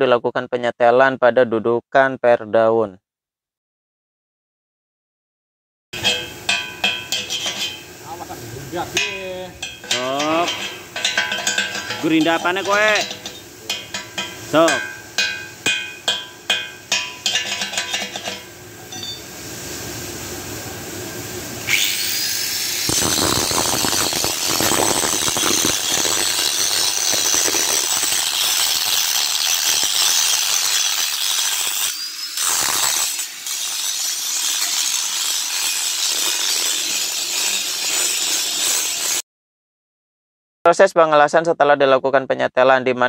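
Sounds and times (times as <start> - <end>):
angle grinder grinding steel: 6.0 - 8.2, 8.8 - 19.2, 21.7 - 39.2
metal knocks: 9.0 - 19.2.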